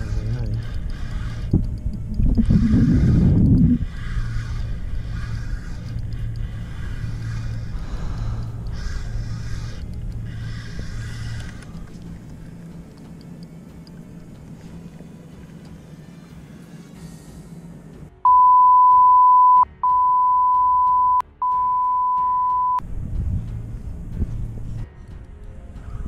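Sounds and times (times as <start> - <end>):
censor bleeps: 18.3 - 22.8.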